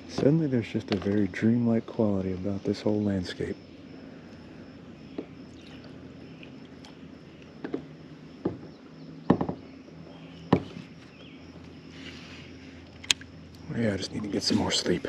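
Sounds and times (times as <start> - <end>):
faint low hum: 0.0 - 15.0
sharp knocks on a kayak: 8.4 - 9.6, 10.5 - 10.8.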